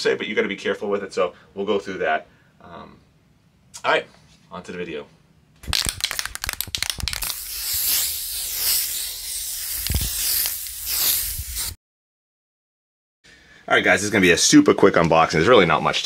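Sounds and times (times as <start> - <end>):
aerosol spray hiss: 6.8 - 11.8.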